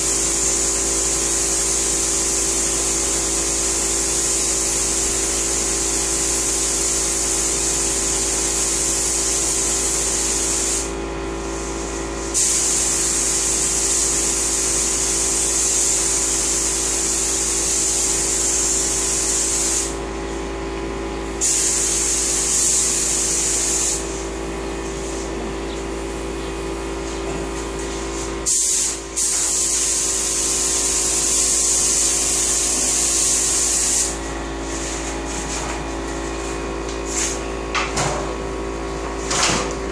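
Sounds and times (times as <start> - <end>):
spray gun hissing: 0.0 - 20.0, 21.4 - 25.3, 28.0 - 35.0
machine hum: 22.8 - 39.9.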